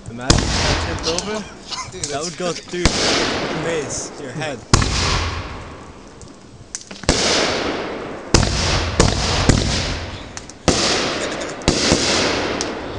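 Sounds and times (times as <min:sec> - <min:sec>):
firework shells bursting: 0:00.0 - 0:12.9.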